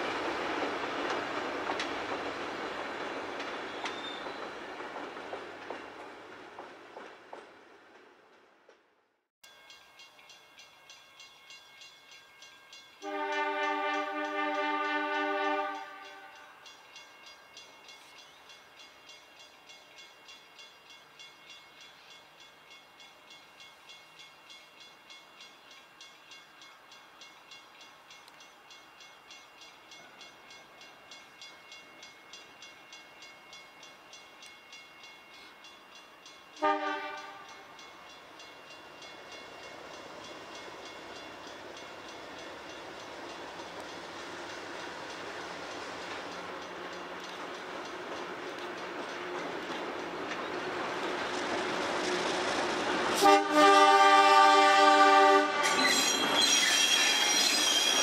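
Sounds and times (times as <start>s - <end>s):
locomotive horn blast: 13.0s - 16.4s, 36.6s - 37.5s, 53.2s - 55.8s.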